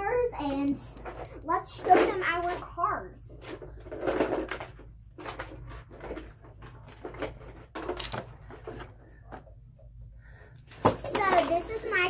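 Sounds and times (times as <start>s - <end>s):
plastic toy cars clattering: 0.0s - 9.1s, 10.7s - 12.0s.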